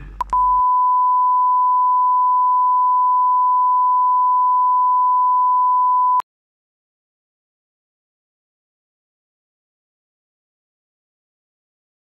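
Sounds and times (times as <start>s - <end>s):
steady test tone beep: 0.2s - 6.2s.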